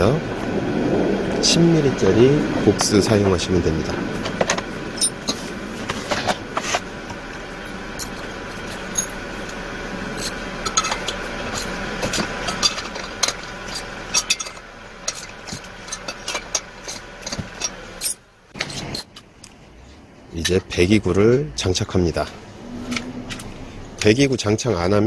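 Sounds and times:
steady mechanical hum: 0.0s - 25.0s
clinks of metal tools and parts: 4.3s - 6.8s, 8.0s - 9.2s, 10.2s - 19.6s.

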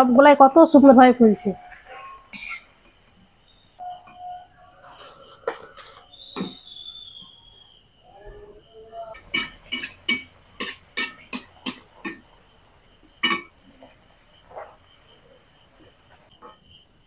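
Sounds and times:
metal utensil tapping on pan: 9.2s - 12.5s, 13.2s - 13.9s.

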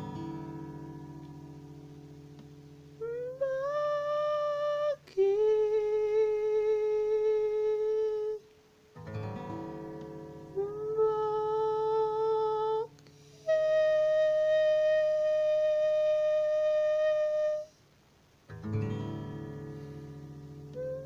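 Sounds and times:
acoustic guitar chord: 0.0s - 8.4s, 9.0s - 17.7s, 18.5s - 21.0s
person humming: 3.0s - 8.4s, 10.4s - 17.8s, 20.7s - 21.0s.

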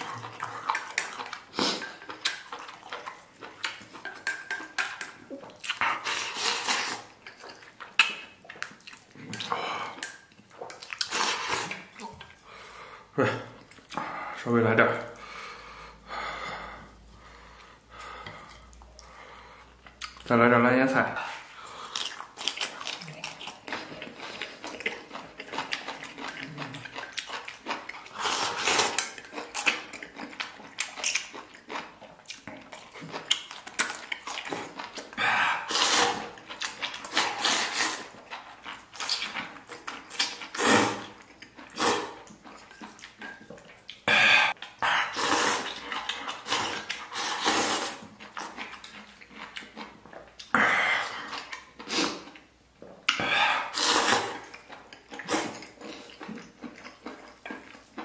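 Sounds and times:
person slurping noodles: 0.0s - 2.0s, 5.7s - 7.1s, 11.0s - 11.9s, 28.1s - 29.8s, 34.4s - 38.2s, 40.1s - 42.3s, 44.0s - 48.6s, 50.5s - 52.4s, 53.1s - 54.6s, 55.2s - 56.2s
wet chewing: 0.0s - 12.8s, 16.6s - 20.3s, 21.4s - 58.0s.

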